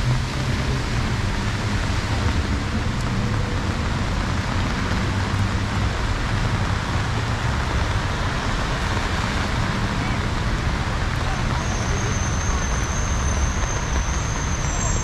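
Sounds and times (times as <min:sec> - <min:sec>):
heavy rain on street: 0:00.0 - 0:15.0
road traffic rumble: 0:00.0 - 0:15.0.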